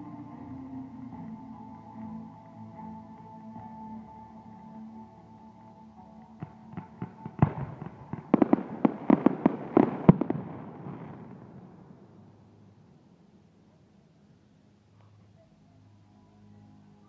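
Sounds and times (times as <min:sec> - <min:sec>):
fireworks crackling fizz: 0:06.4 - 0:12.3
fireworks bangs: 0:06.4 - 0:12.5.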